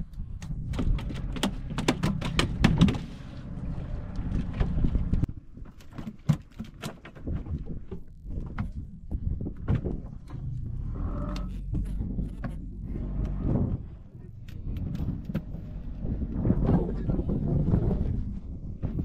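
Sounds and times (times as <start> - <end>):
low steady rumble: 0.0 - 5.7, 7.4 - 19.0.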